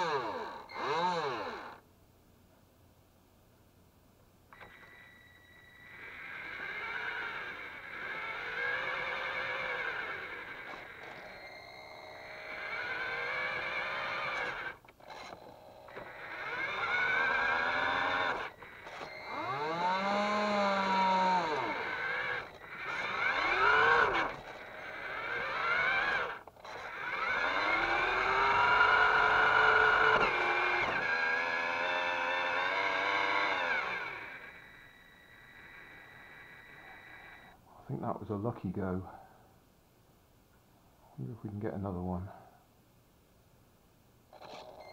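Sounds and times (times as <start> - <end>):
toy electric motors whining: 0.0 - 1.8, 4.5 - 37.6, 44.3 - 44.9.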